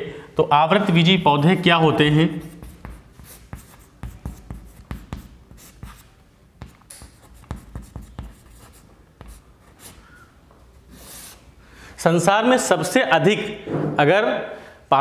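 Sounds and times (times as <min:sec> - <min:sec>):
chalk writing on chalkboard: 0:02.3 - 0:10.2, 0:10.9 - 0:11.5.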